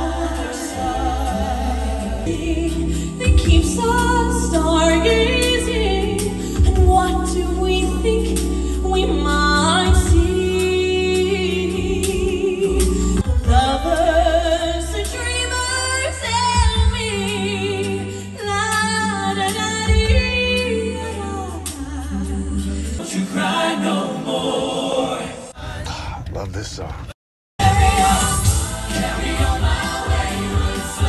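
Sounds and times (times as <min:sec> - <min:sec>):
woman singing with vibrato: 0:00.0 - 0:22.8
sustained bass accompaniment: 0:00.0 - 0:23.0.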